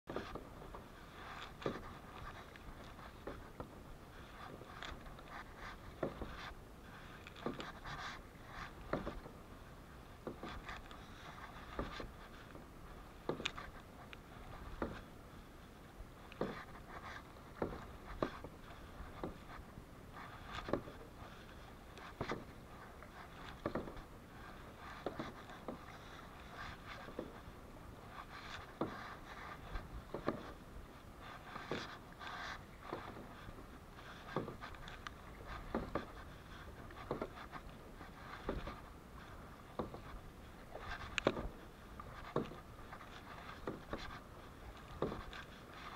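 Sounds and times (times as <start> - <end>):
paddle strokes splashing: 0.1 - 45.9.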